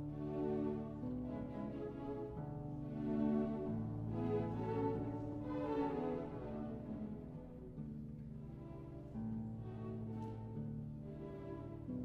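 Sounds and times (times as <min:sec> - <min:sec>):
slow orchestral strings: 0:00.0 - 0:12.0.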